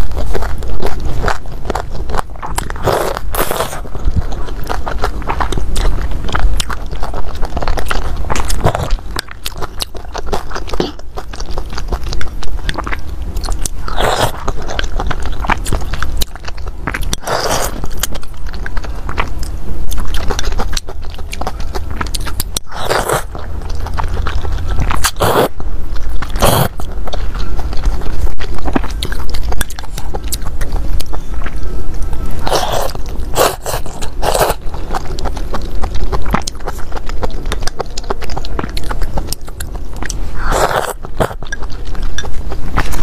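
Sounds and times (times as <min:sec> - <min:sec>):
chewing with wet mouth clicks: 0:00.0 - 0:43.0
loud slurps: 0:25.0 - 0:25.6, 0:26.4 - 0:26.8.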